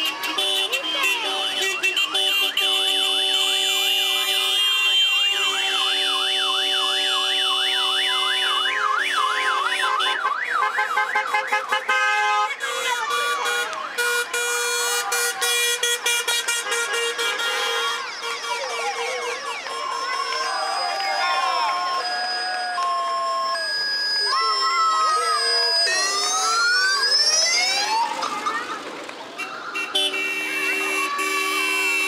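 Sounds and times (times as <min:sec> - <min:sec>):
car horns blaring: 0:00.0 - 0:24.2, 0:28.0 - 0:32.0
siren horn warbling: 0:02.9 - 0:12.5, 0:13.2 - 0:28.3.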